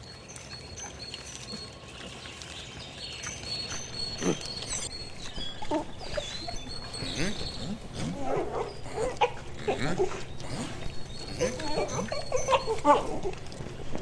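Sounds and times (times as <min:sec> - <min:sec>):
dogs whining and yelping: 0:03.7 - 0:14.0.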